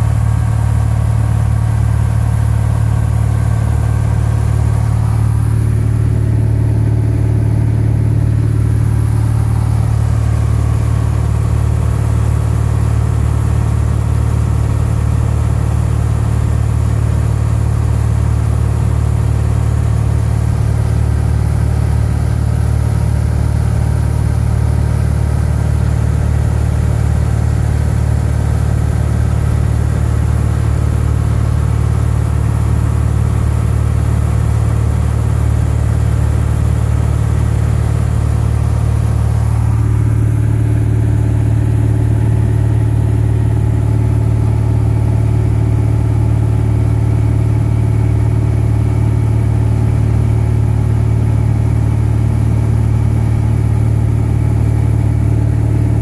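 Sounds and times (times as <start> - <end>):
propeller aircraft engine droning: 0.0 - 56.0.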